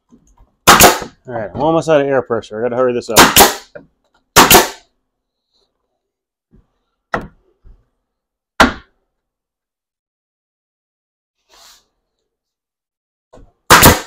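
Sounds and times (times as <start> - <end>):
pneumatic nail gun firing: 0.7 - 1.1, 3.2 - 3.7, 4.4 - 4.8, 13.7 - 14.0.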